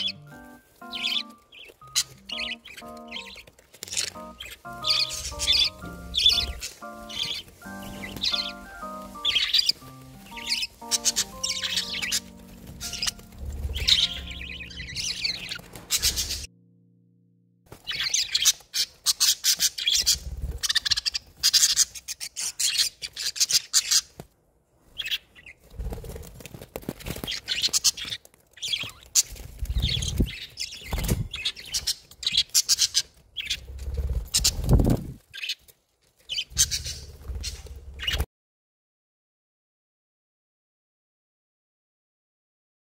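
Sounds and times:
budgerigars chirping and chattering: 0.0 - 16.5, 17.8 - 24.1, 25.0 - 25.6, 27.1 - 35.6, 36.3 - 38.3
low thumps of birds moving: 4.8 - 16.5.

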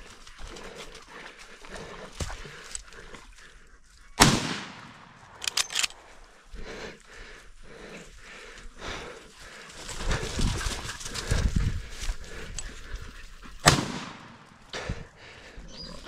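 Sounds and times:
rifle shot: 4.2 - 6.0, 13.6 - 14.5
sharp clicks: 4.6 - 6.2.

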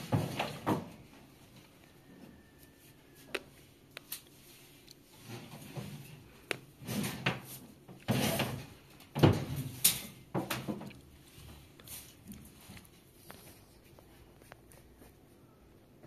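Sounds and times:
objects knocking and scraping: 0.0 - 1.2, 5.2 - 11.7.

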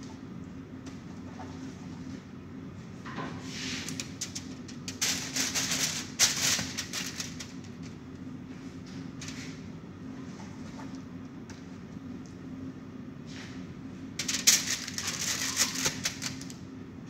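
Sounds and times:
steady low hum: 0.0 - 17.0
aluminium foil crinkling: 3.8 - 8.0, 14.2 - 16.6.

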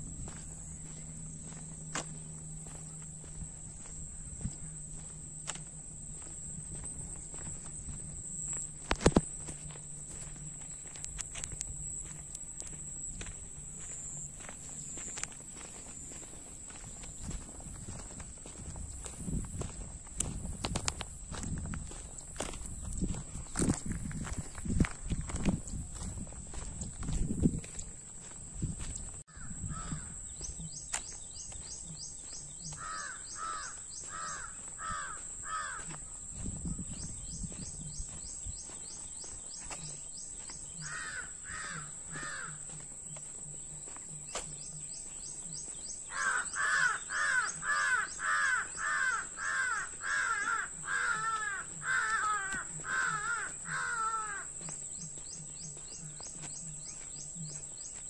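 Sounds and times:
crow cawing: 29.3 - 30.2, 32.7 - 36.1, 40.8 - 42.8, 46.1 - 54.6.

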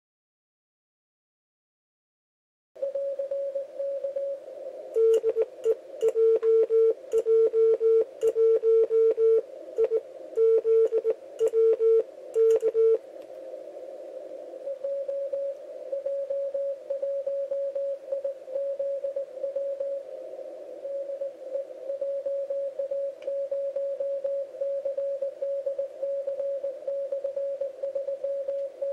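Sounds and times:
morse code sidetone beeps: 2.8 - 4.4, 5.0 - 13.0, 14.7 - 20.0, 20.9 - 28.9
faint morse signal: 2.8 - 13.0, 14.5 - 28.9
radio band noise hiss: 2.8 - 28.9.

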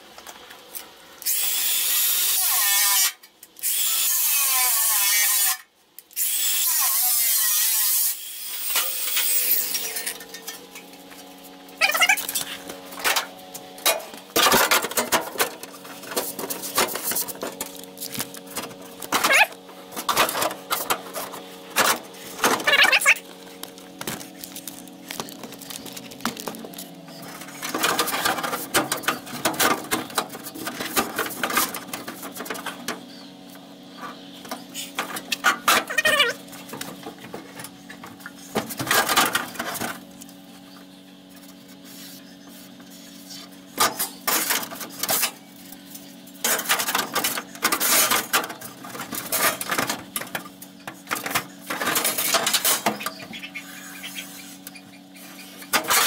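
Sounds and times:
sheet metal clanks and scrapes: 27.3 - 32.8.

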